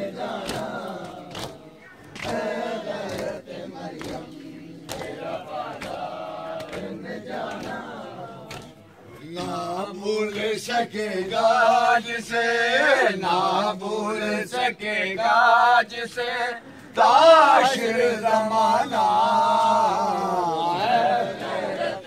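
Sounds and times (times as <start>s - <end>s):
men chanting a lament: 0.0s - 22.0s
hands slapping chests: 0.2s - 9.6s.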